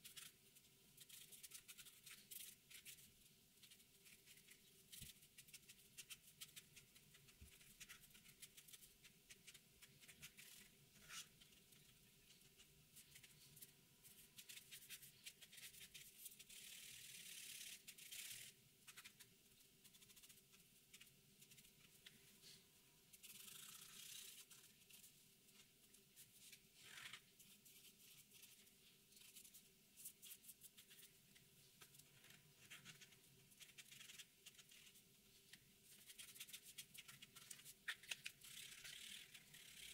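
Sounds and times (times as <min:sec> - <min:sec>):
marker scratching on paper: 0:01.0 - 0:25.1.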